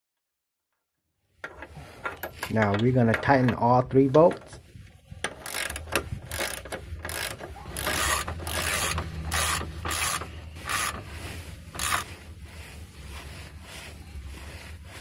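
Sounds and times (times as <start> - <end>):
socket ratchet clicking: 5.3 - 11.0.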